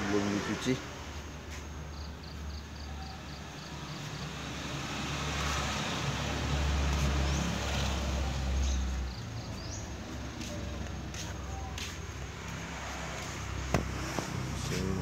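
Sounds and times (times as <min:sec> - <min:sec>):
motor vehicle rumble: 0:00.0 - 0:15.0.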